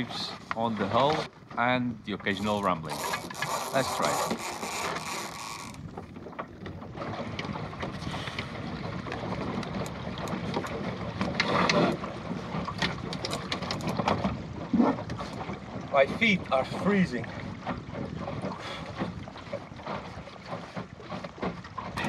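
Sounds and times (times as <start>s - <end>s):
boat clicks and knocks: 0.0s - 22.0s
water slapping against hull: 0.0s - 22.0s
wind on microphone: 5.6s - 21.1s.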